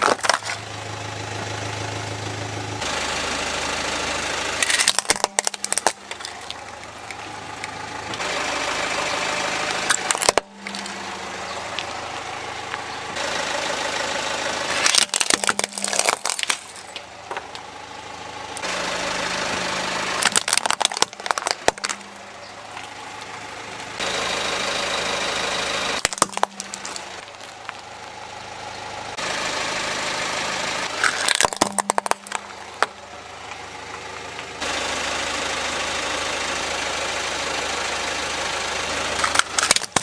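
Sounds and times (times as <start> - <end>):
toys cracking under tyre: 0.0 - 0.7, 4.6 - 8.2, 9.7 - 11.1, 14.7 - 17.7, 20.2 - 23.0, 26.0 - 27.9, 30.9 - 33.0, 39.2 - 40.0
car engine idling: 0.0 - 40.0.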